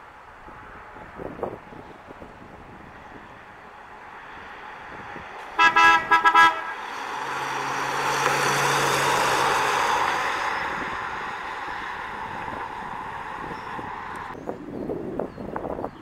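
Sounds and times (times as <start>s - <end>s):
car engine hum: 0.0s - 14.6s
tyres rushing: 3.0s - 14.4s
car horn toots: 5.6s - 6.9s.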